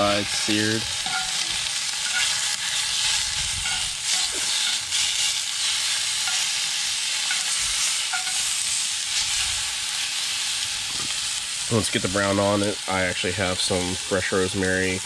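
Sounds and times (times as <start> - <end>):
meat sizzling in a skillet: 0.0 - 15.0
metal tongs clinking: 1.0 - 2.4, 3.6 - 4.8, 6.2 - 6.5, 7.2 - 8.5.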